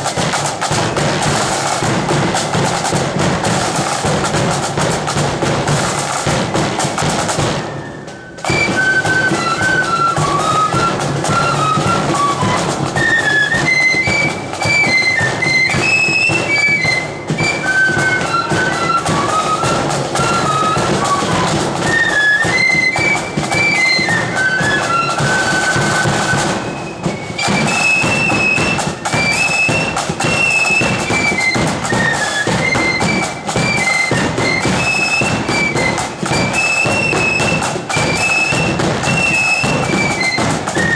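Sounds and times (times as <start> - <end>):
flute melody: 0.0 - 40.9
side drums: 0.0 - 40.9.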